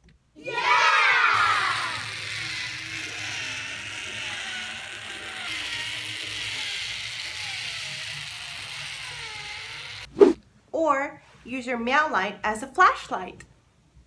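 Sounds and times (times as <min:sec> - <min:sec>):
toy car motor whirring: 0:01.3 - 0:10.1.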